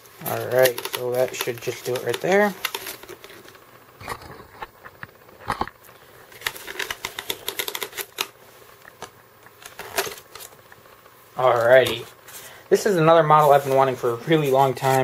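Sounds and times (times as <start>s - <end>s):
styrofoam clicks and creaks: 0.2s - 3.4s.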